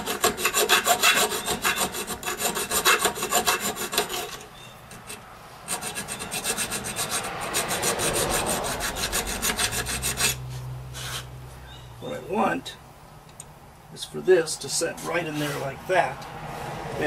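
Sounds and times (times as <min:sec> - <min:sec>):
hand file rasping on metal: 0:00.0 - 0:11.3.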